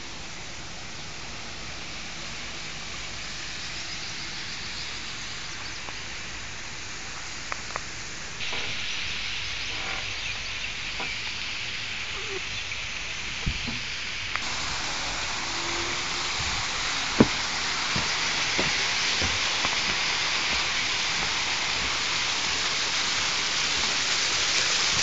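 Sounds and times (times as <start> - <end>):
rushing water hiss: 0.0 - 25.0.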